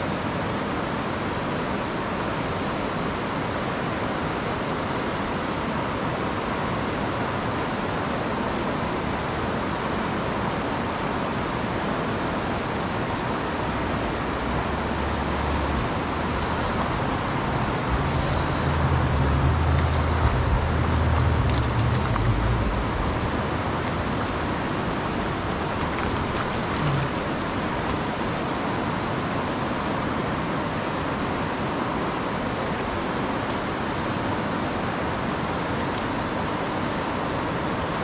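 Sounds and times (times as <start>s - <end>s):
river water over rocks: 0.0s - 38.0s
low rumble: 14.4s - 27.9s.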